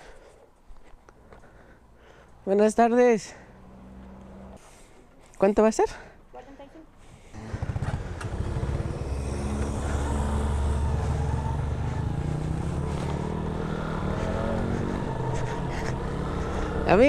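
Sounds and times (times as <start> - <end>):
motorcycle engine pulling away: 7.3 - 17.0.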